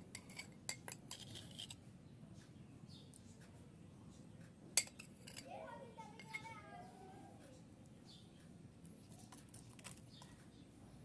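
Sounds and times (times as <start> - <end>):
spoon and bowl clicking: 0.1 - 1.8, 4.8 - 5.4.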